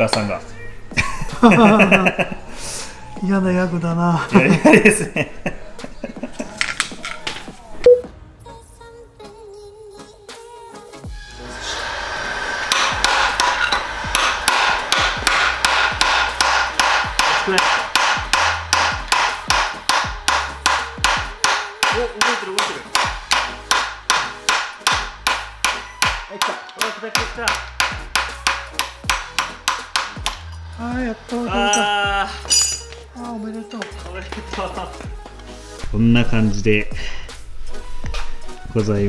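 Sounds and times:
heat gun blowing hiss: 11.1s - 18.6s
rapid hammer blows on metal: 12.7s - 30.5s.

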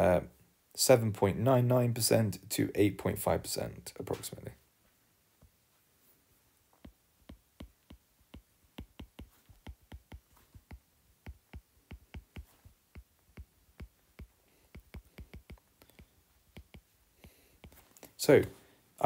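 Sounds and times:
stylus tapping on tablet screen: 6.8s - 17.9s.

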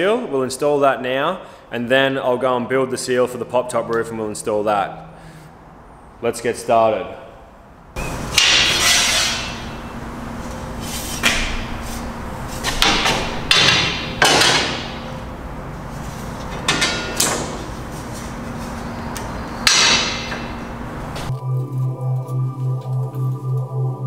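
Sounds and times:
low hum: 7.6s - 24.0s
metallic knocks and clanks: 12.6s - 15.3s, 16.4s - 17.8s, 19.6s - 21.3s.

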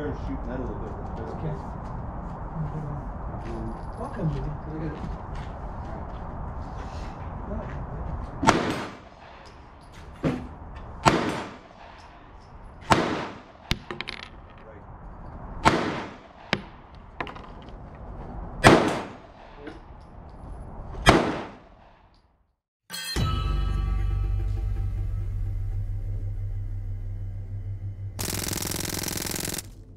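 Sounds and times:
handgun shots: 8.4s - 9.0s, 11.0s - 11.6s, 12.9s - 13.9s, 15.6s - 16.7s, 18.6s - 19.2s, 21.0s - 22.0s.

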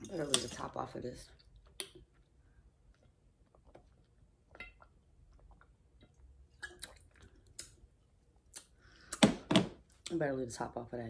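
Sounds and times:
drinking and swallowing: 1.4s - 7.8s
lip smacks and clicks: 8.5s - 9.2s.

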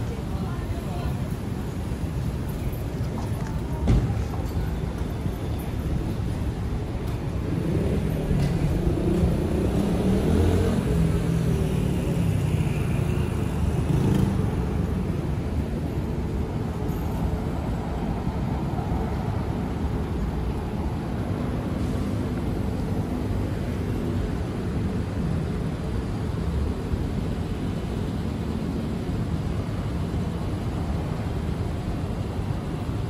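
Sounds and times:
road traffic rumble: 0.0s - 33.0s.

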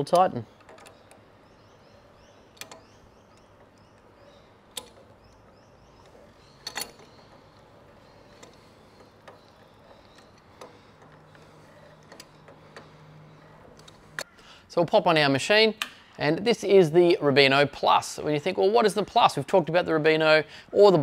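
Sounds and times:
metallic clicks and taps: 2.5s - 14.3s.

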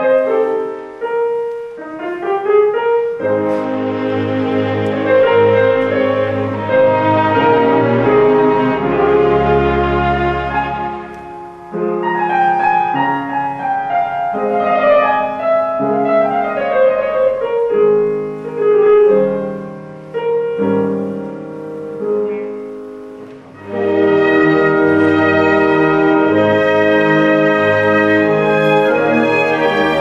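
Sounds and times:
classical piano music: 0.0s - 30.0s.

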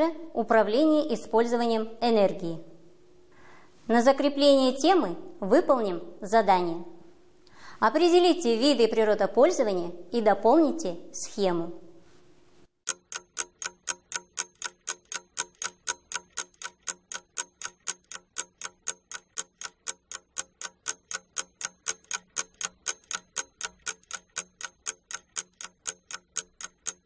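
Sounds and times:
clock ticking fast: 12.9s - 27.0s.

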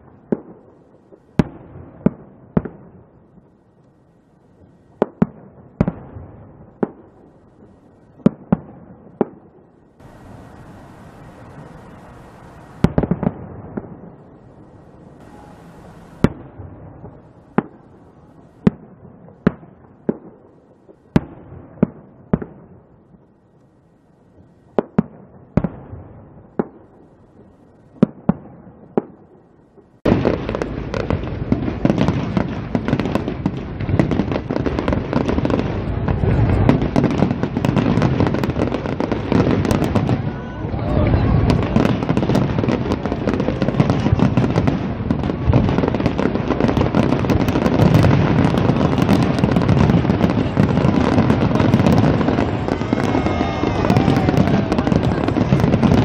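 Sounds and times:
fireworks bursting: 0.0s - 56.0s
loud dense continuous din: 35.6s - 37.6s, 38.3s - 56.0s.

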